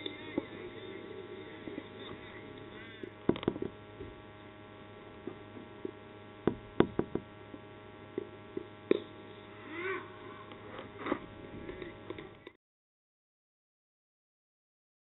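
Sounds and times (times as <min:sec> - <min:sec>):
low hum: 0:00.0 - 0:12.6
sharp knocks: 0:03.3 - 0:04.2, 0:06.4 - 0:07.3.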